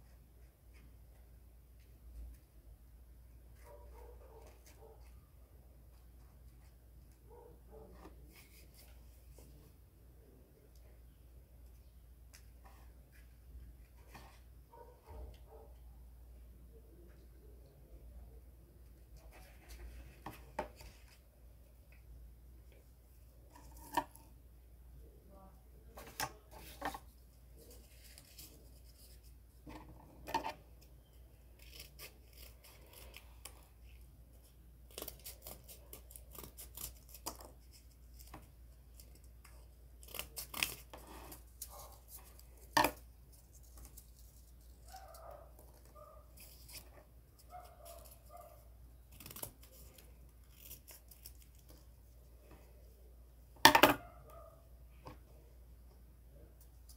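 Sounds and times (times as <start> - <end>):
scissors cutting cardboard: 31.6 - 33.6, 34.8 - 44.4.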